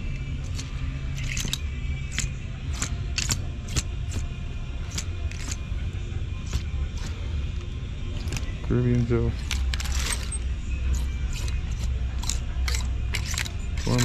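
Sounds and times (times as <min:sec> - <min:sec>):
steady low hum: 0:00.0 - 0:14.0
hangers clicking on metal rack: 0:00.4 - 0:03.8, 0:11.3 - 0:14.0.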